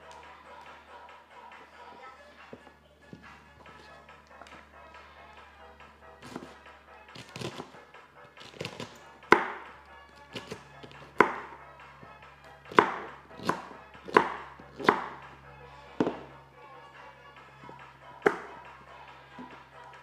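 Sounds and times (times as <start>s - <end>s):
knife chopping on cutting board: 6.2s - 6.6s, 7.2s - 7.7s, 8.4s - 9.6s, 10.2s - 11.6s, 12.7s - 15.3s, 16.0s - 16.2s, 18.2s - 18.6s.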